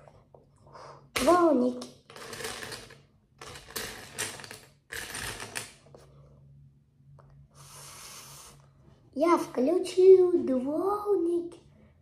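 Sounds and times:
plastic toy bricks clattering: 1.2s - 5.8s.

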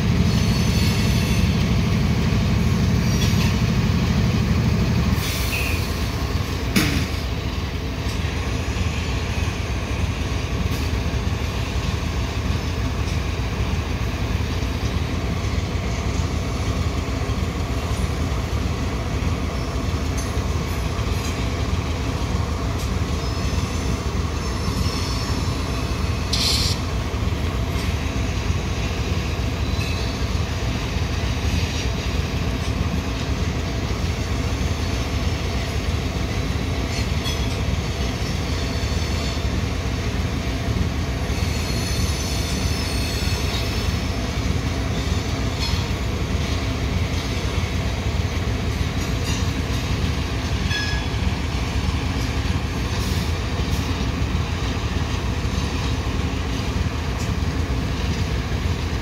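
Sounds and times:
hopper cars rolling rumble: 0.0s - 59.0s
sharp clank: 6.7s - 7.2s.

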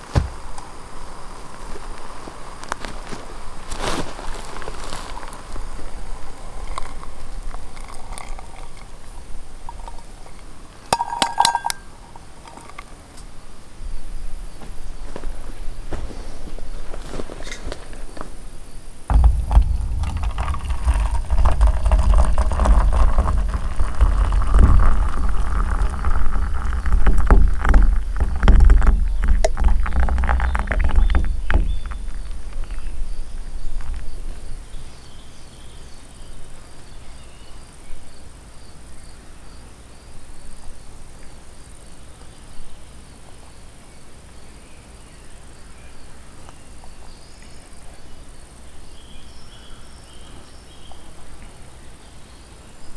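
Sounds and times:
crickets chirping: 0.0s - 52.9s
tea pouring into a metal mug: 5.2s - 12.9s, 19.1s - 34.1s.

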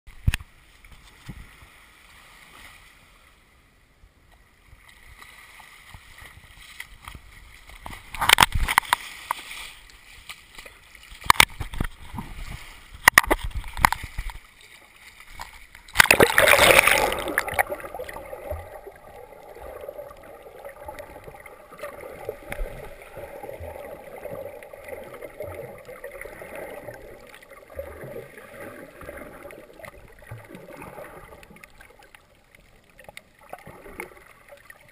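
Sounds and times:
seawater splashing: 5.2s - 34.9s
muffled underwater gurgle: 15.9s - 34.9s.

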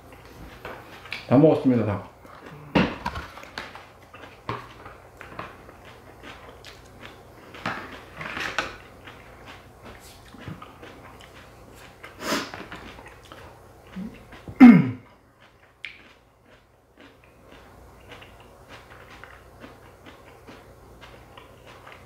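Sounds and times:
slurping and chewing: 2.2s - 22.0s
low throat sound: 14.0s - 15.1s.

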